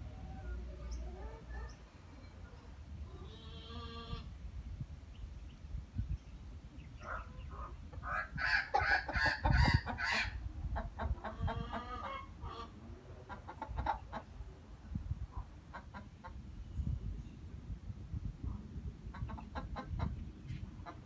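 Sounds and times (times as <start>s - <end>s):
hen clucking: 3.1s - 4.3s, 7.0s - 14.4s, 15.3s - 16.4s, 19.1s - 21.0s.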